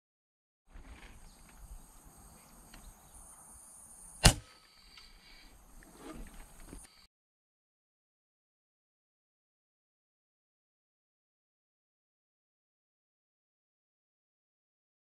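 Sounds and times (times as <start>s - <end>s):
faint outdoor background: 0.7s - 7.1s
air rifle shot: 4.2s - 4.6s.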